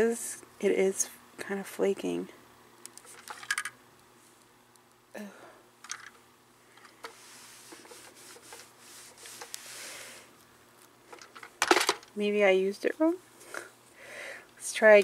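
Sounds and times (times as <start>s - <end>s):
iron hissing on fabric: 7.1s - 10.3s.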